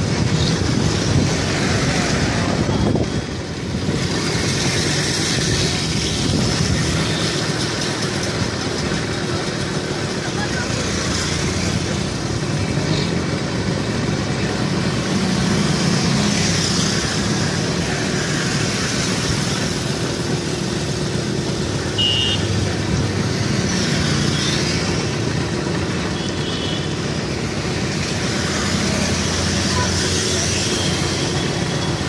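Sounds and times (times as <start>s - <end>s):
motorcycle engines rumbling: 0.0s - 32.0s
road and wind noise: 0.0s - 32.0s
high horn beep: 22.0s - 22.6s.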